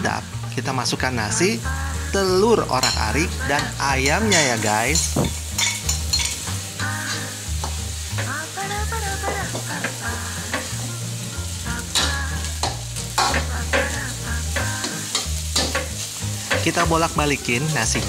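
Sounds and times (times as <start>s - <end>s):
background music: 0.0s - 18.0s
rice sizzling in a wok: 0.0s - 18.0s
metal spatula scraping a wok: 2.8s - 8.3s, 9.3s - 16.8s
spatula clinking on wok: 2.8s - 8.3s, 11.9s - 16.8s.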